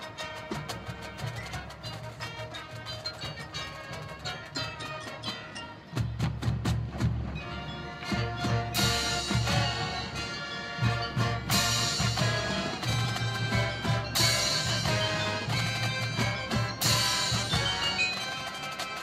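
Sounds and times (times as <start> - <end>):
marching band playing: 0.0 - 19.0
loud brass chords: 7.4 - 18.8.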